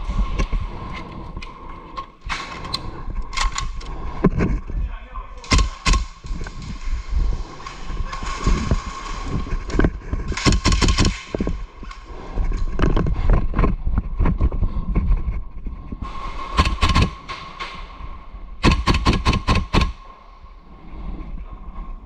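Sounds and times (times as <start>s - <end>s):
airsoft guns firing: 5.4s - 6.2s, 10.4s - 11.3s, 16.5s - 17.8s, 18.6s - 20.0s.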